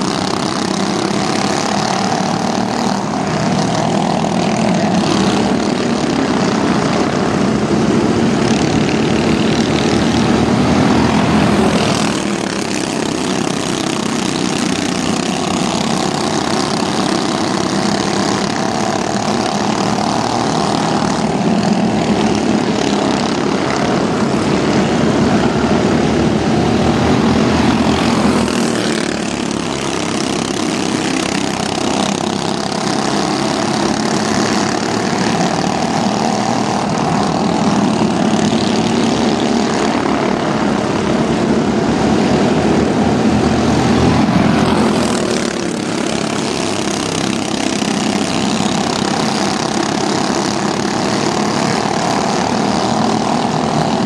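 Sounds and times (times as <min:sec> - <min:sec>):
race truck engines droning: 0:00.0 - 0:54.0.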